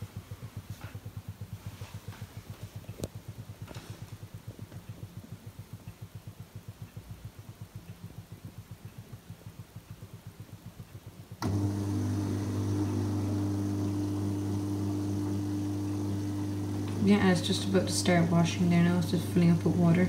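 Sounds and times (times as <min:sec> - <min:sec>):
dishwasher pulsing hum: 0:00.0 - 0:20.0
dishwasher pump humming: 0:10.4 - 0:20.0.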